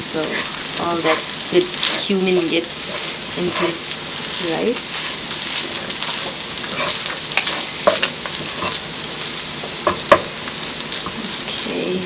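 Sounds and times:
rice sizzling in a pan: 0:00.0 - 0:12.0
spatula clacking against pan: 0:06.8 - 0:08.8.

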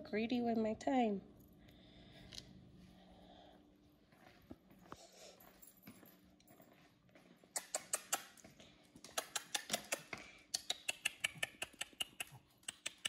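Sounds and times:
dog claws clicking on hard floor: 0:07.6 - 0:13.0.

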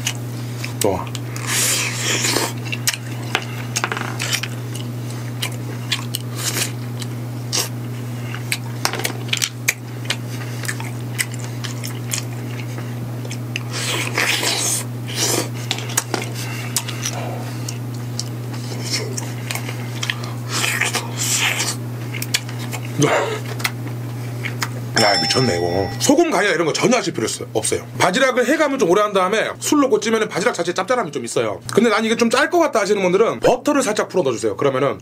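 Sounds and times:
wet slurping and chewing: 0:00.0 - 0:24.8.

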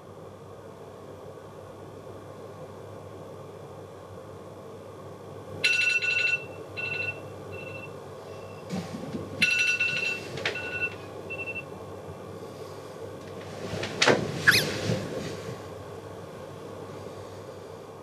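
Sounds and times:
electronic alarm chime: 0:05.6 - 0:07.9.

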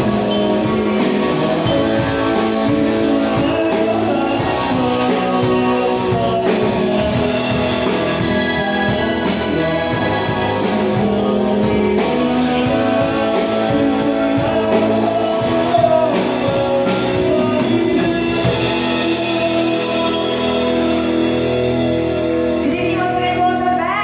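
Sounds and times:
drums with cymbal beat: 0:00.0 - 0:23.7
electric bass: 0:00.0 - 0:24.0
keyboard: 0:00.0 - 0:24.0
woman singing: 0:22.6 - 0:24.0.

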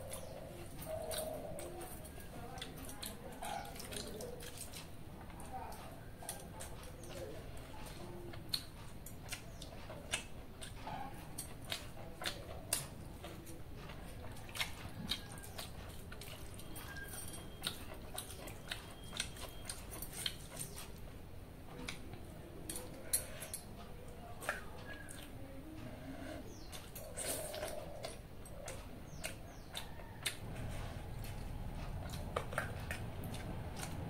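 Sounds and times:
chewing: 0:00.0 - 0:34.0
fingers in wet food: 0:00.0 - 0:34.0.

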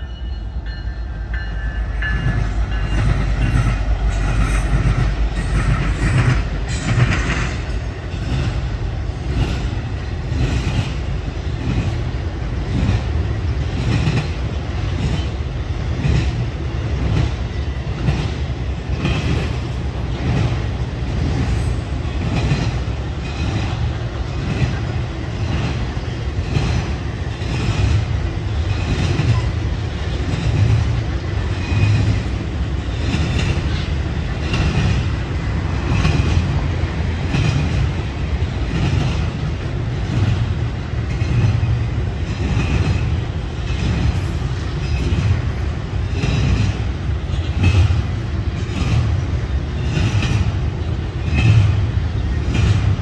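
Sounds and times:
rumble of train cars: 0:00.0 - 0:53.0
wheels clacking over rail joints: 0:00.7 - 0:53.0.

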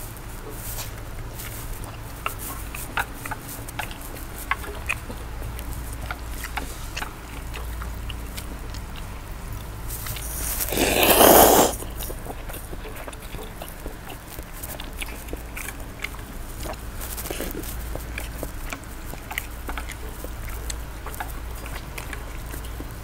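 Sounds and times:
close-up chewing: 0:00.0 - 0:23.0
slurping noodles: 0:10.1 - 0:12.3.

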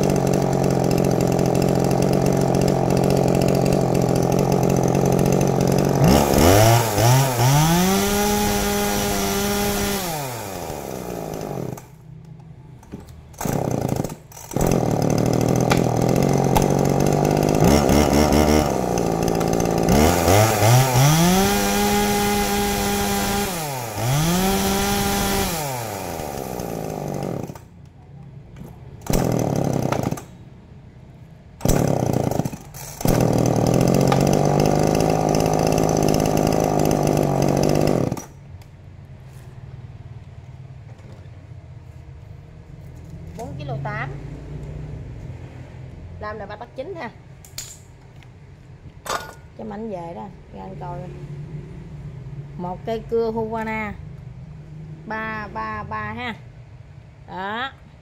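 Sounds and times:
chainsaw idling and revving: 0:00.0 - 0:12.0, 0:13.4 - 0:27.7, 0:29.0 - 0:30.4, 0:31.6 - 0:38.4.

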